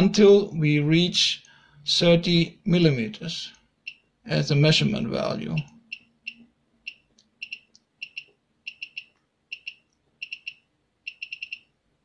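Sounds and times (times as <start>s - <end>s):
short high electronic beeps: 6.0s - 11.7s.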